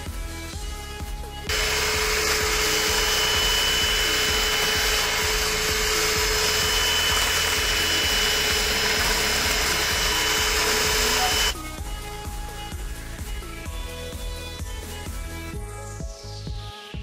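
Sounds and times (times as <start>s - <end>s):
electric hand mixer whirring: 1.5s - 11.7s.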